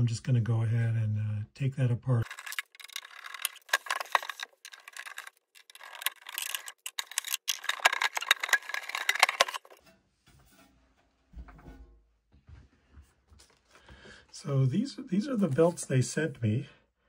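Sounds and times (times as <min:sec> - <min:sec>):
case being handled: 0:02.2 - 0:09.8
screwdriver clicking and scraping: 0:02.2 - 0:09.8.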